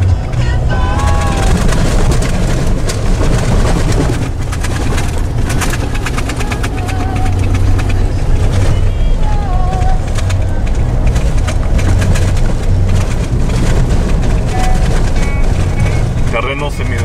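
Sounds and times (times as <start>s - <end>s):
clicks and rattles: 0.0s - 17.0s
engine and tyre rumble: 0.0s - 17.0s.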